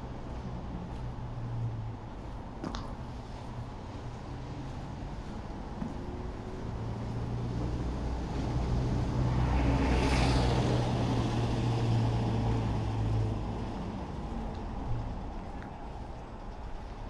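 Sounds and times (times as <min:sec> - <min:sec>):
vehicle passing by: 0:04.2 - 0:16.1.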